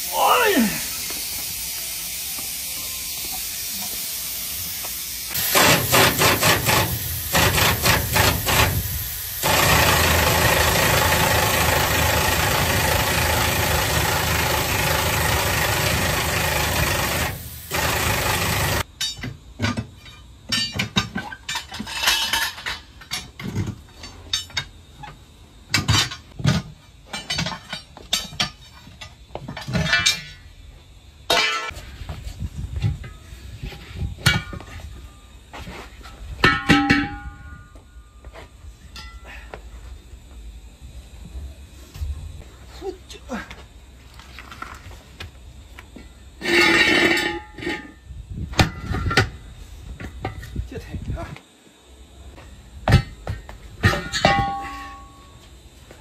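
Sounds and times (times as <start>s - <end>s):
loud steady hissing: 0.0s - 19.2s
power tool bursts: 0.8s - 18.9s.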